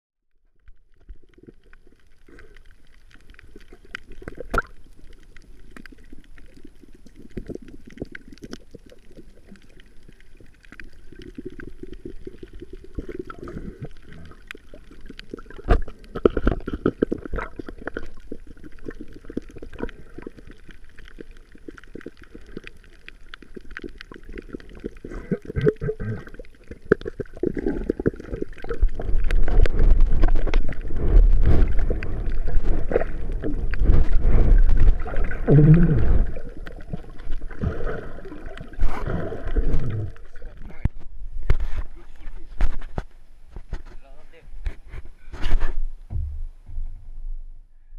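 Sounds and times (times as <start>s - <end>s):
gurgling water underwater: 0.4s - 47.6s
low rumble of movement: 28.9s - 38.2s, 45.8s - 47.9s.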